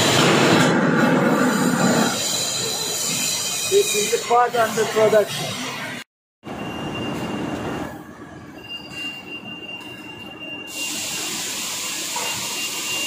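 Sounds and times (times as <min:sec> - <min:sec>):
high-pitched machine whine: 0:00.0 - 0:08.0
loud hiss: 0:10.7 - 0:13.0.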